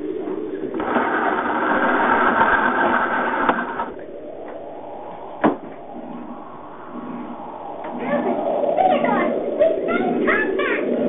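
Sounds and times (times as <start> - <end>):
sharp knock: 5.4 - 5.6.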